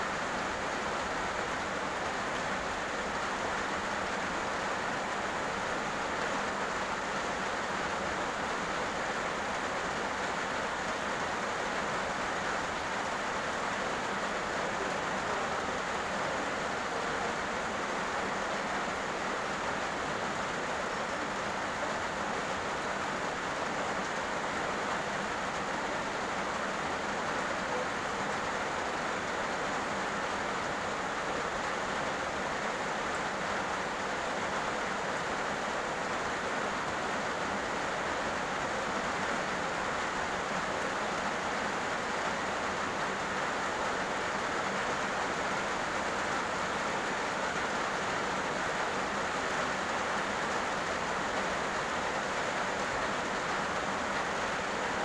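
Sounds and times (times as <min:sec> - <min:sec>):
heavy rain on road: 0:00.0 - 0:55.0.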